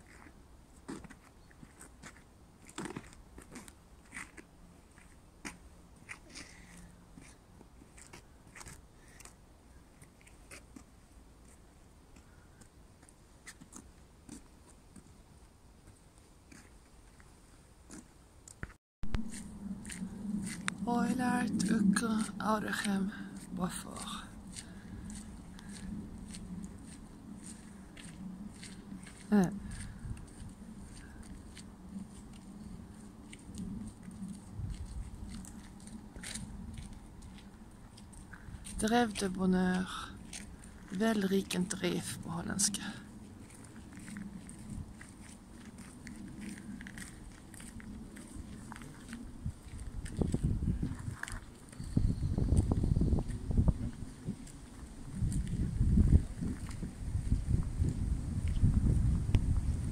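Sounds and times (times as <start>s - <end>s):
faint clicks and crunches: 0.0s - 10.9s, 43.4s - 51.9s
low rumble: 19.0s - 38.9s
footsteps on gravel and leaves: 19.1s - 51.8s, 52.4s - 59.8s.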